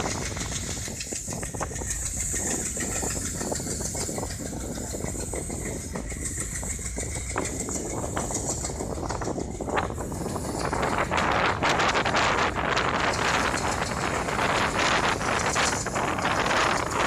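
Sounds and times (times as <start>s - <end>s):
train wheels rumbling on rail: 0.0s - 17.0s
high hiss: 0.1s - 9.1s.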